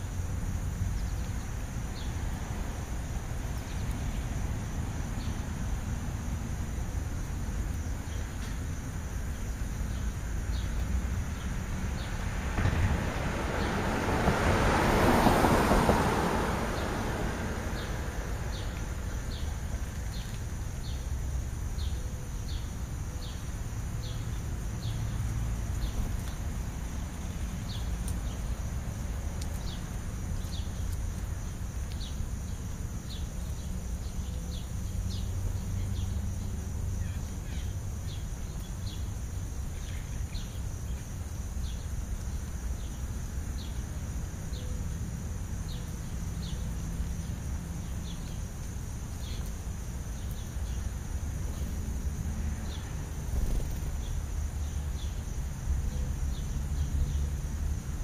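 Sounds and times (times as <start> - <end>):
low rumble of traffic: 0.0 - 58.0
wind: 0.0 - 58.0
sparrows chirping: 0.8 - 2.3, 3.5 - 4.4, 17.7 - 28.7, 29.5 - 41.9, 45.6 - 57.4
car passing: 10.5 - 20.7, 45.0 - 58.0.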